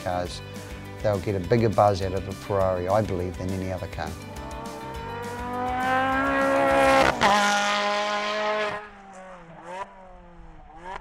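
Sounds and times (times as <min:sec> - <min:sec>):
racing car engine revving: 0:04.2 - 0:11.0.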